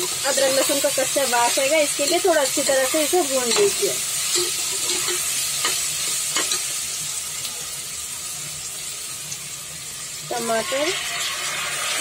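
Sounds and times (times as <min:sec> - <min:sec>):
metal spatula scraping pot: 0:00.0 - 0:06.6
beans sizzling in oil: 0:00.0 - 0:12.0.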